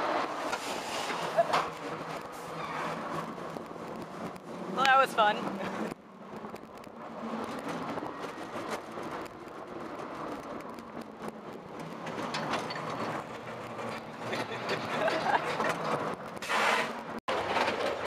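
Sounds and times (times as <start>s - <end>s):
roller coaster rumbling on track: 0.0s - 18.0s.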